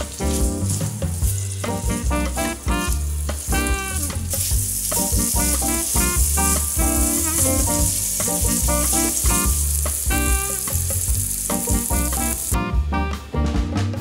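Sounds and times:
vegetables sizzling in a frying pan: 0.0s - 12.6s
background music: 0.0s - 14.0s.

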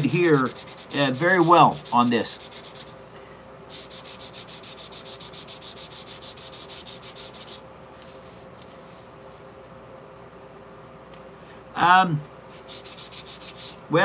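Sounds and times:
sandpaper rubbing back and forth: 0.0s - 3.0s, 3.7s - 7.6s, 12.6s - 13.8s.

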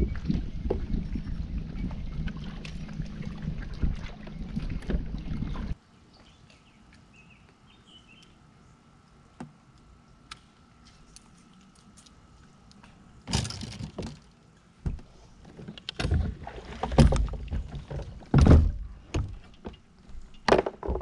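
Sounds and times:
wind noise on microphone: 0.0s - 5.8s.

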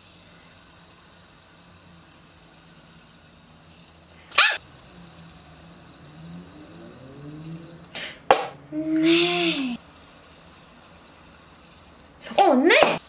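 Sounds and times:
dog yipping: 4.3s - 4.6s.

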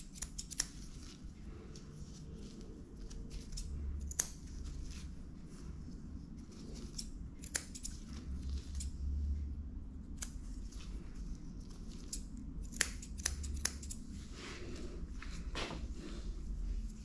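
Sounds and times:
scissors snipping fur: 0.0s - 1.2s, 2.6s - 5.2s, 6.4s - 9.0s, 10.0s - 14.1s
low steady hum: 0.0s - 17.0s.

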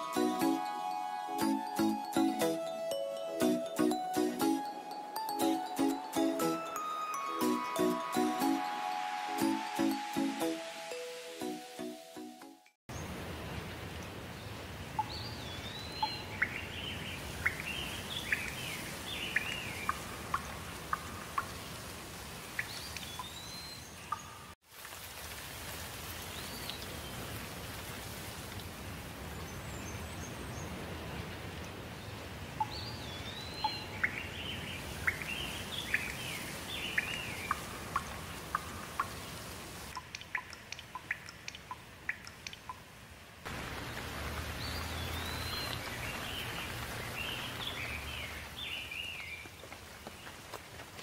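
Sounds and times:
small birds calling and singing: 15.0s - 21.5s, 22.6s - 24.5s, 32.0s - 42.6s, 43.7s - 50.4s
sharp dripping ticks: 35.9s - 39.2s, 39.9s - 42.9s.

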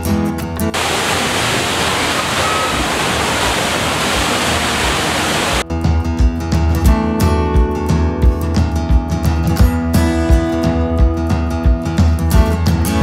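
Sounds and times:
indoor waterfall rushing: 0.7s - 5.6s
guitar music: 5.7s - 13.0s.

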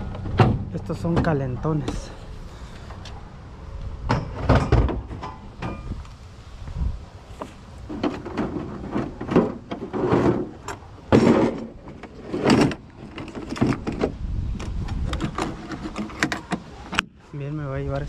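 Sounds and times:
knocks and clatters of plastic and wood: 0.0s - 2.1s, 4.1s - 6.0s, 7.4s - 17.1s.

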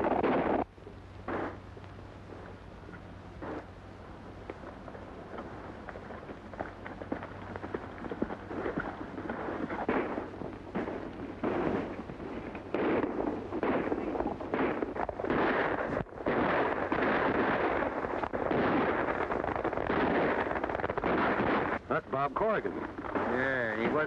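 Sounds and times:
film soundtrack hiss: 0.0s - 24.0s
horses hoofbeats: 4.4s - 16.0s
rapid gunshots: 12.7s - 21.8s.

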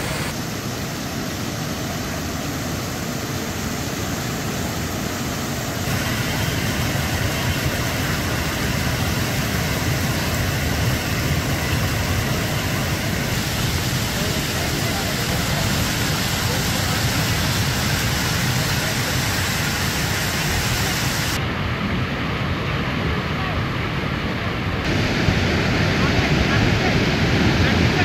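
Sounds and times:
floodwater rushing over a ledge: 0.0s - 23.6s, 24.8s - 28.0s.

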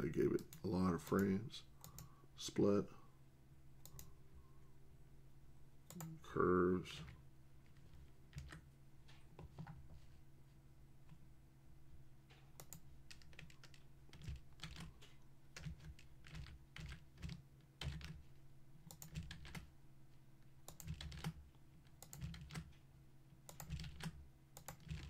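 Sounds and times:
low steady hum: 0.0s - 25.0s
computer keyboard clicks: 1.2s - 2.1s, 3.8s - 4.1s, 8.3s - 8.6s, 12.6s - 14.9s, 15.6s - 18.2s, 18.9s - 19.6s, 20.7s - 21.4s, 22.0s - 22.7s, 23.5s - 25.0s.

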